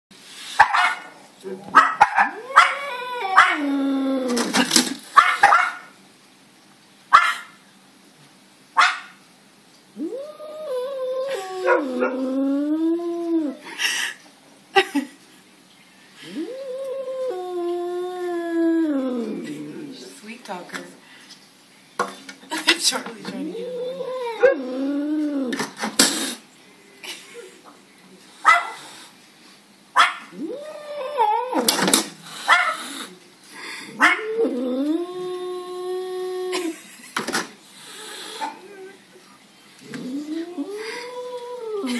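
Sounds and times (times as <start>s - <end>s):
sharp bark-like calls: 0.6s - 1.1s, 1.7s - 2.8s, 5.2s - 5.9s, 7.1s - 7.6s, 8.8s - 9.2s, 28.4s - 28.8s, 30.0s - 30.4s
angry cat yowling: 2.0s - 4.5s, 10.0s - 13.6s, 16.2s - 20.0s, 23.4s - 25.6s, 30.1s - 31.8s.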